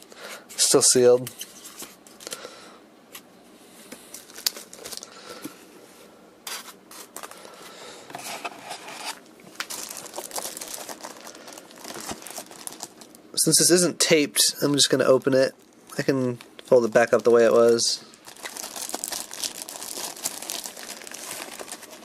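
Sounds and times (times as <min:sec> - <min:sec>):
plastic bag crinkling: 0:04.1 - 0:05.2, 0:08.7 - 0:13.3, 0:14.7 - 0:22.0
styrofoam rubbing and creaking: 0:18.2 - 0:22.0.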